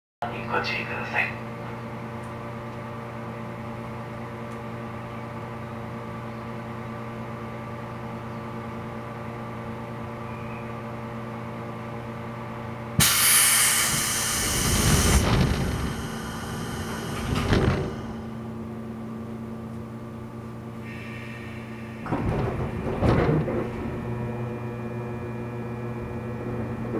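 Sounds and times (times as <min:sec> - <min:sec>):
train electrical hum: 0:00.2 - 0:26.9
compressed air hissing: 0:13.0 - 0:18.3
low rumble: 0:13.9 - 0:19.2, 0:21.6 - 0:26.9.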